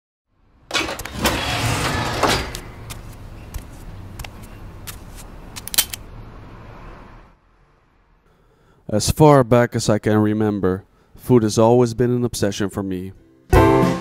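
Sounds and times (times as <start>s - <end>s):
street noise: 0.3s - 8.8s
sharp clicks: 2.5s - 6.0s.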